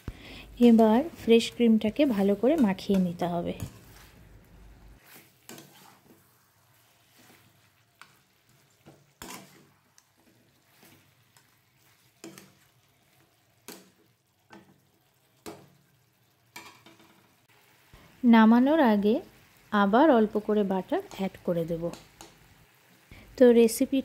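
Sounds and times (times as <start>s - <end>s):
faint sizzle: 0.0s - 24.0s
metal spatula scraping a pan: 5.0s - 13.4s.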